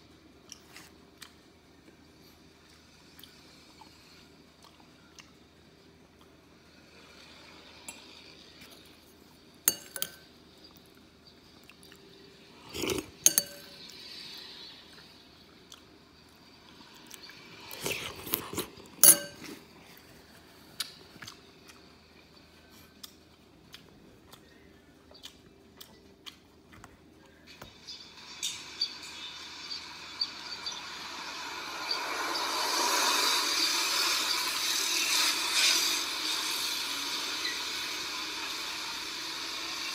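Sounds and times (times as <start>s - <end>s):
metal spoon clinking on bowl: 9.7s - 10.2s, 12.8s - 13.8s, 19.0s - 19.6s.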